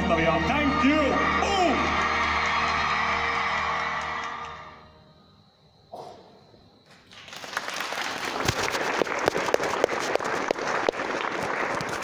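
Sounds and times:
audience applauding: 0.8 - 4.8, 6.9 - 12.0.

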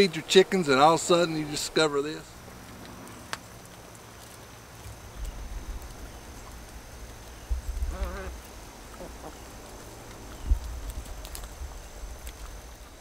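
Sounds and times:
low rumbling on microphone: 5.1 - 12.7.

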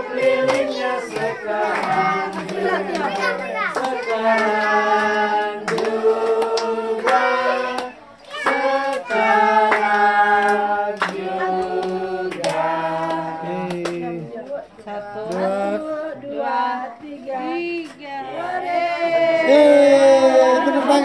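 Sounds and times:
group singing birthday song: 0.0 - 21.0
hands clapping: 0.2 - 14.1.

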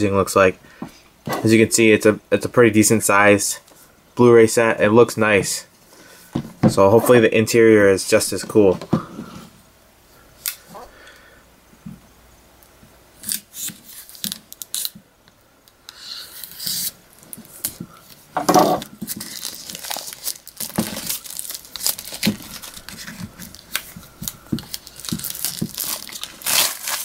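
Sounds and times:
plastic wrap crinkling: 13.2 - 15.0, 16.3 - 27.0
plastic wrap ripping: 13.2 - 15.0, 18.8 - 27.0.

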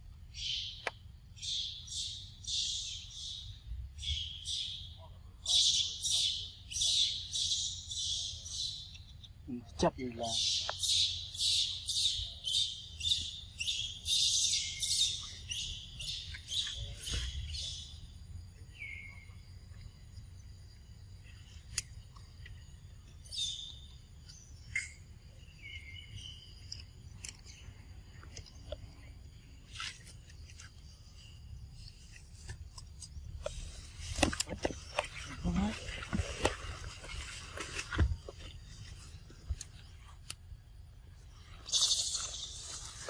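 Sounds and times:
high-pitched chirping calls: 41.6 - 43.0.

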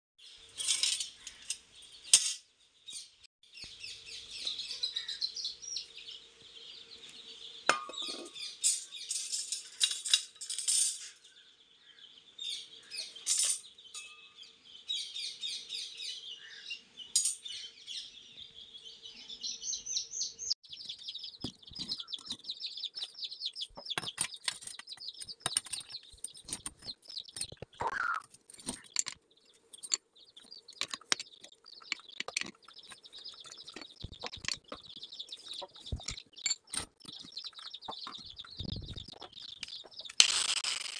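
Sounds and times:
small birds chirping: 0.2 - 10.4, 11.0 - 40.9
metal parts clinking: 0.6 - 2.4, 7.7 - 11.2, 13.2 - 14.1, 28.4 - 29.2, 40.2 - 40.9.

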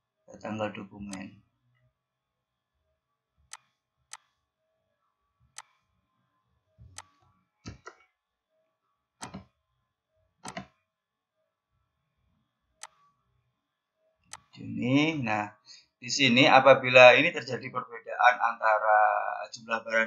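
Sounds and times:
mouse and keyboard clicks: 3.5 - 4.3, 6.9 - 8.0, 9.2 - 9.5, 10.4 - 10.8, 12.8 - 13.0, 14.3 - 14.6.

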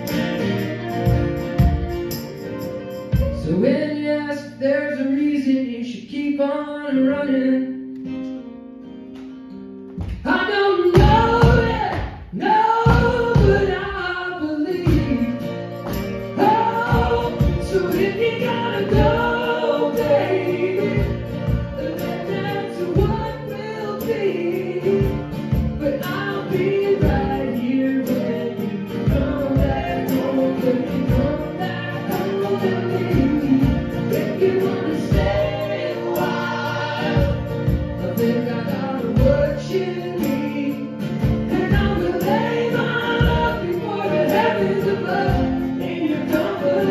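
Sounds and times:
drums: 0.0 - 3.8, 10.0 - 46.9
mandolin: 0.0 - 5.0, 6.9 - 46.9
strummed acoustic guitars: 0.0 - 46.9
group vocal harmonies: 10.2 - 46.9.

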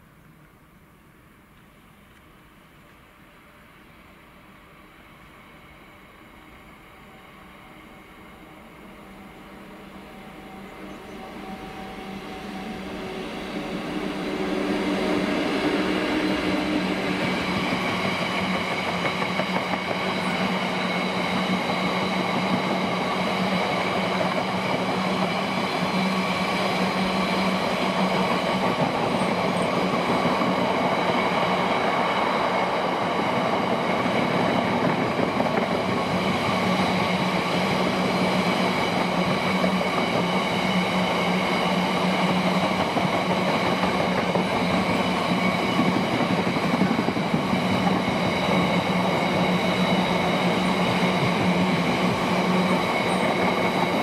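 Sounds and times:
diesel locomotive engine: 0.0 - 54.0
train wheels rumbling: 5.3 - 54.0
wheels clickety-clack: 17.5 - 20.6, 42.3 - 54.0.

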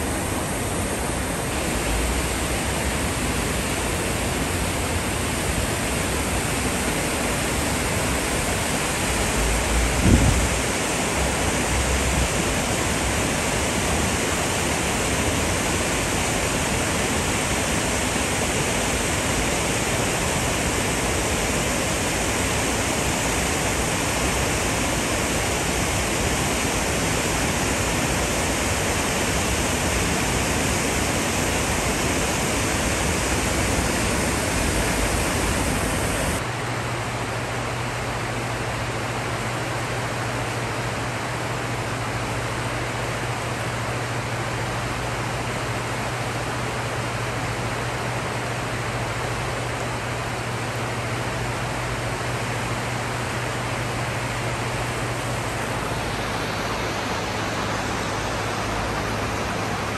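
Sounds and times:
floodwater rushing down channel: 0.0 - 36.6, 38.2 - 59.9.

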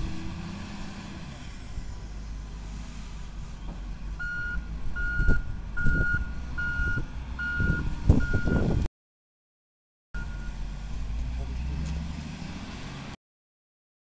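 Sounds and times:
diesel engine rumble: 0.0 - 8.9, 10.2 - 13.2
reversing alarm beeping: 4.2 - 8.7.

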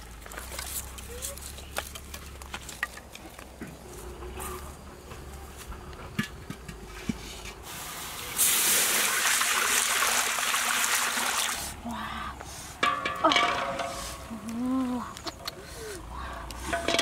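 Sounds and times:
water hissing in hot wok: 7.6 - 11.8.

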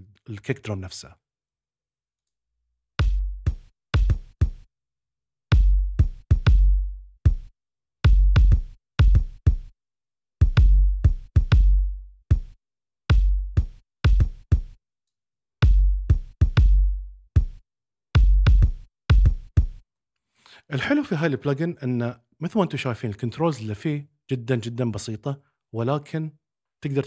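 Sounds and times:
kick drum booming: 3.0 - 4.6, 5.5 - 7.5, 8.1 - 9.7, 10.4 - 14.8, 15.6 - 17.6, 18.2 - 19.8.

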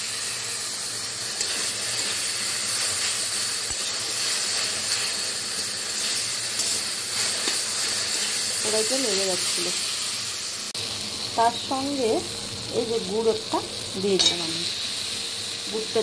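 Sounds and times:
spatula stirring in a wok: 0.0 - 10.1
food sizzling in hot oil: 0.0 - 16.0.

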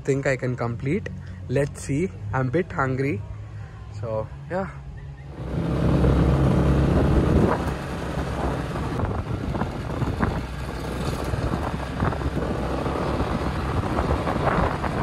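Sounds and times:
wind on microphone: 5.3 - 15.0
motor scooter engine: 5.4 - 15.0.

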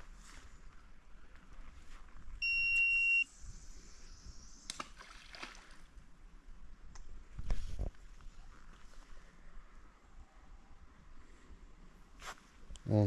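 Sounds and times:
electronic beep: 2.4 - 3.3.

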